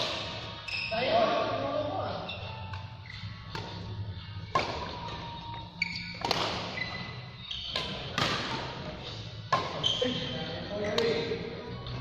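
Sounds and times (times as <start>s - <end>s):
racket striking shuttlecock: 0.0s - 0.5s, 2.7s - 3.9s, 4.5s - 4.9s, 6.2s - 6.8s, 7.7s - 8.8s, 9.5s - 9.8s.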